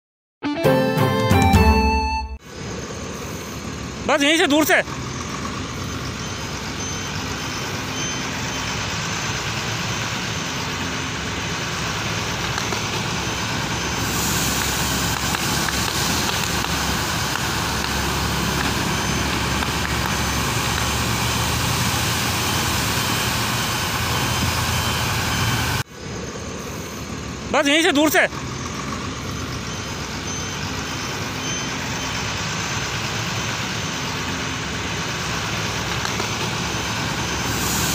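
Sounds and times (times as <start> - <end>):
fire crackles: 4.9 - 25.8, 31.8 - 37.9
fire rushing noise: 8.4 - 29.8, 31.8 - 37.9.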